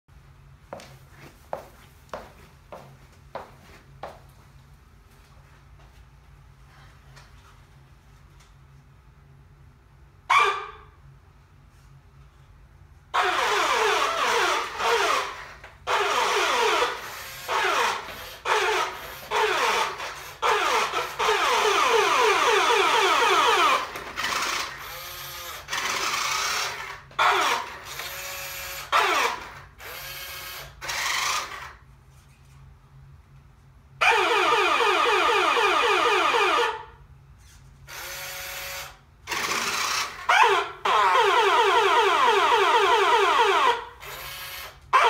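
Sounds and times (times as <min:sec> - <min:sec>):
toy truck motor whirring: 0:13.2 - 0:31.8, 0:34.0 - 0:36.8, 0:37.9 - 0:45.0
toy electronic sound effects: 0:34.0 - 0:36.9, 0:39.3 - 0:43.9.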